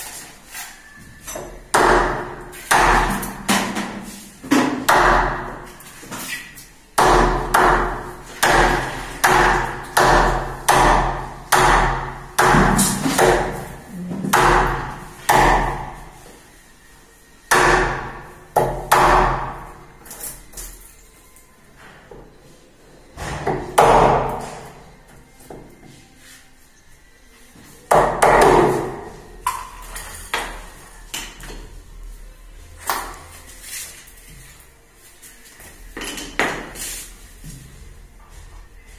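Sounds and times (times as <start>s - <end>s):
hammer striking chisel: 7.0s - 13.6s, 27.9s - 29.6s.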